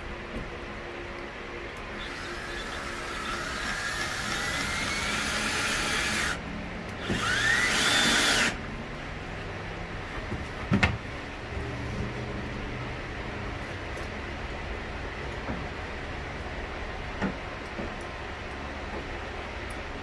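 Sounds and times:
power drill whine: 1.9 - 6.4, 7.0 - 8.6.

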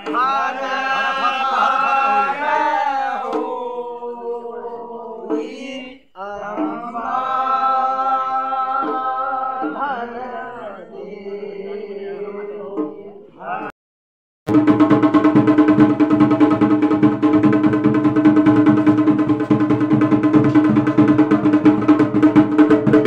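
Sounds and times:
voices singing long held notes: 0.0 - 13.7.

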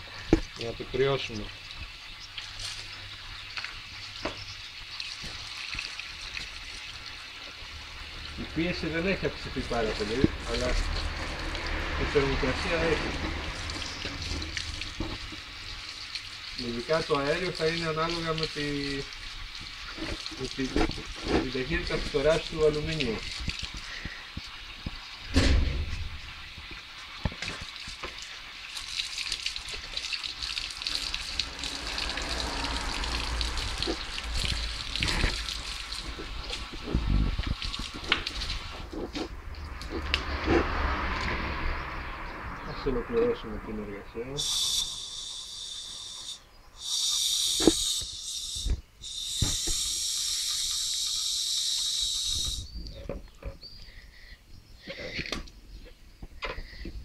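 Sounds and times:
water spraying from a hose: 0.0 - 52.8
loud low thump: 25.3 - 26.4
gas hissing from valve: 44.4 - 52.7.

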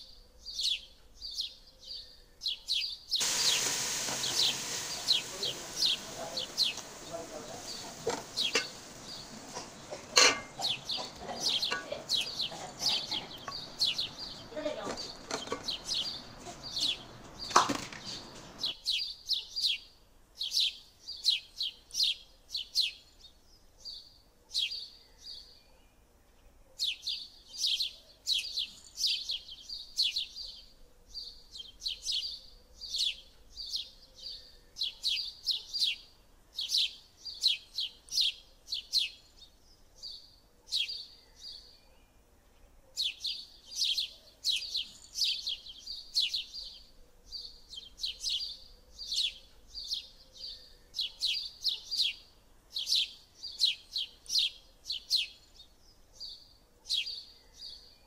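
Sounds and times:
small birds chirping: 0.0 - 58.0
spoon scraping metal pot: 7.6 - 14.2, 14.8 - 16.0.

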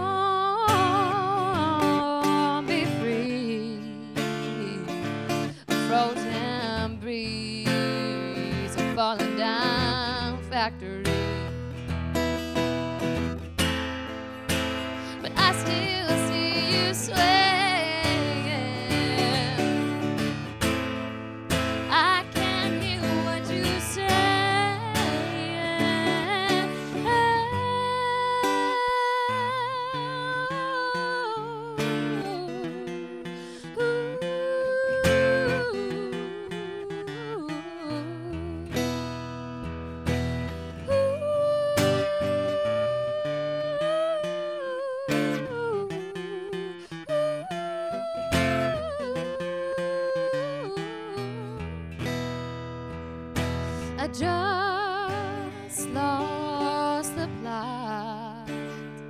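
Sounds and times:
woman vocalising wordlessly: 0.0 - 11.5, 15.0 - 20.1, 21.9 - 33.1, 40.8 - 51.7
acoustic guitar: 0.0 - 59.0.

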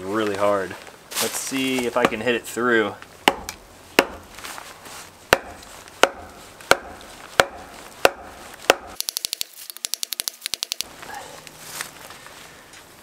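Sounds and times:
wooden baton whacking knife: 5.3 - 10.9
rapid sharp clicks: 9.0 - 10.9.

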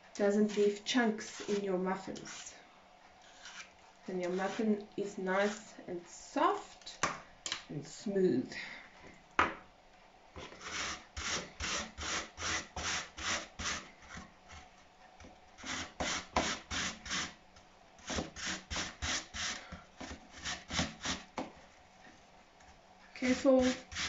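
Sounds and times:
apple grated on metal grater: 0.4 - 2.6, 3.2 - 4.7, 23.2 - 24.0.

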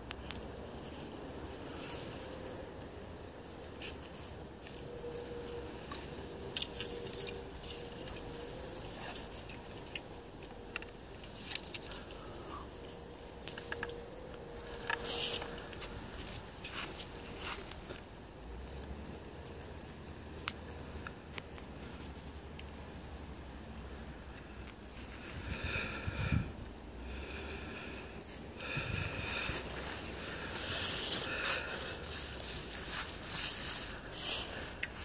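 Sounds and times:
faint steady hum: 0.0 - 35.0
small bird chirping: 1.2 - 2.0, 4.8 - 5.7, 20.6 - 21.2, 25.4 - 25.9
clicks and rustles: 5.8 - 21.7.

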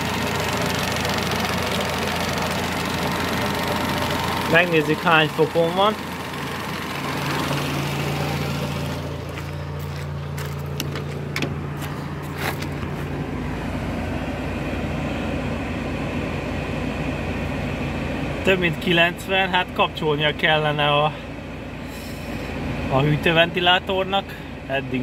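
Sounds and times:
car engine idling: 0.0 - 25.0
car door clicks and knocks: 10.8 - 11.6.

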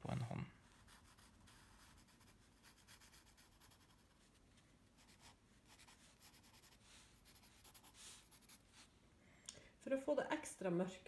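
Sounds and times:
pencil scratching on paper: 0.6 - 4.4, 5.0 - 8.9.

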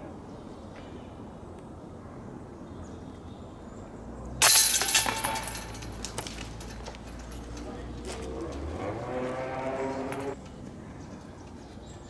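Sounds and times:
disc striking metal chains: 4.4 - 10.4.

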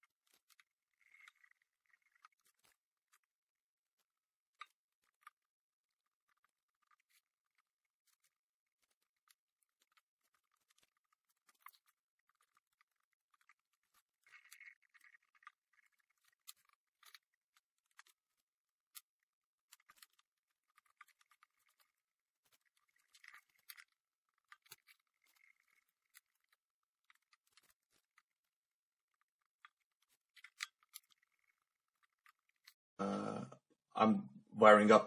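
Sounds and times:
small clicks and scratches on breadboard: 0.0 - 33.0.

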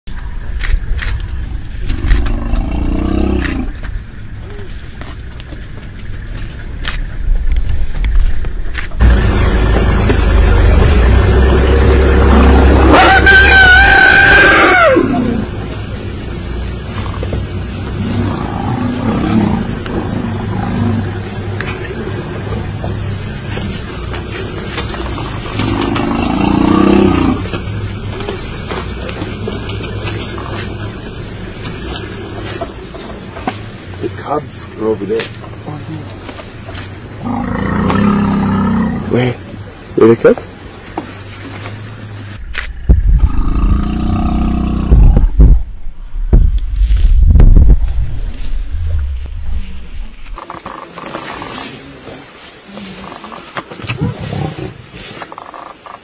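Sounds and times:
idling vehicle engine hum: 0.1 - 13.4, 14.8 - 46.2
animals bellowing and growling: 1.2 - 4.8, 9.0 - 40.7, 41.5 - 45.4, 49.4 - 56.0
vehicle engine idling: 8.6 - 13.0.

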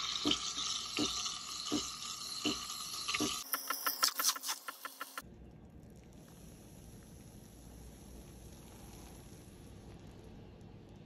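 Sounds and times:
steam wand hissing into milk: 0.0 - 5.2.

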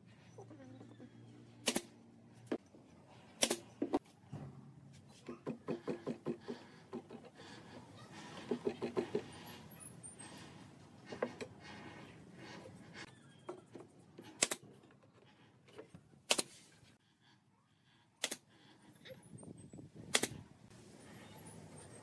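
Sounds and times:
pneumatic nailer firing: 1.6 - 1.9, 3.4 - 3.7, 14.3 - 14.6, 16.3 - 16.7, 20.1 - 20.4.

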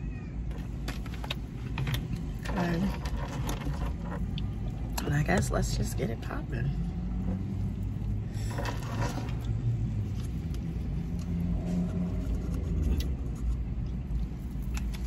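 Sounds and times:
plastic cup and spoon rustling: 0.5 - 4.9, 8.4 - 15.0.

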